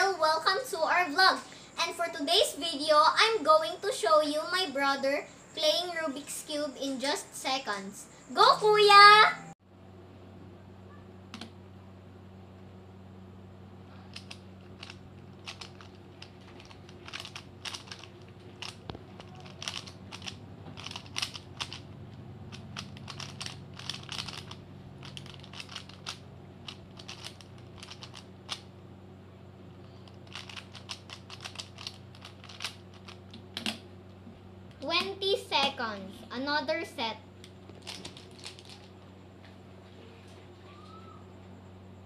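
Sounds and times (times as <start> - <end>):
steady low hum: 0.0 - 42.0
puzzle cube clicking: 14.1 - 21.8, 22.5 - 28.6, 30.2 - 33.7.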